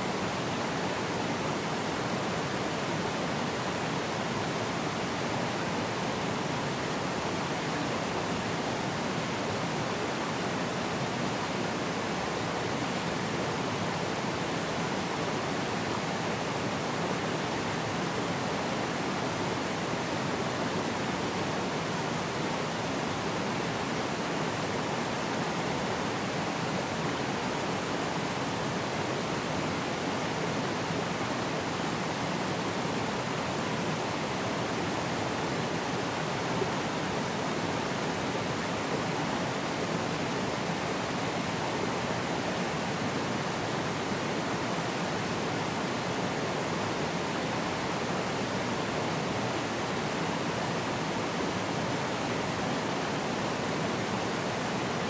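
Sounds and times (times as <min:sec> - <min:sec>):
stream rushing over rocks: 0:00.0 - 0:55.0.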